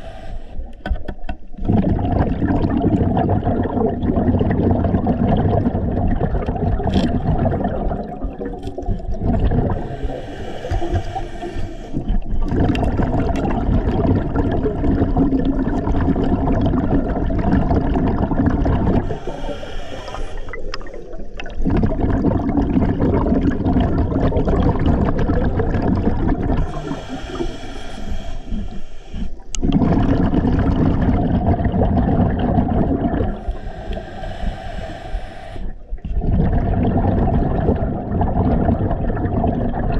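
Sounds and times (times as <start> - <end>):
hissing regulator inhalations: 0.0 - 1.0, 9.7 - 12.8, 19.0 - 21.4, 26.6 - 29.8, 33.3 - 36.0
exhaled bubbles gurgling: 0.0 - 39.9.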